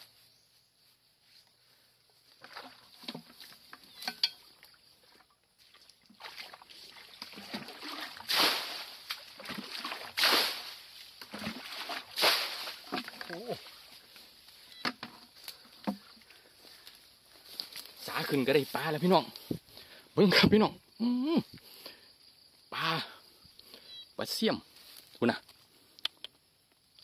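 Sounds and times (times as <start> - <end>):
water sloshing: 2.3 - 14.2
loud water splashes: 6.2 - 13.0.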